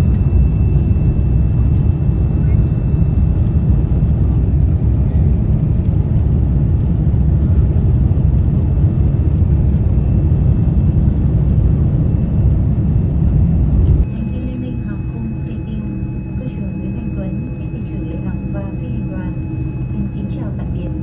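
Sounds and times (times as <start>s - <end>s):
jet airliner low rumble: 0.0s - 21.0s.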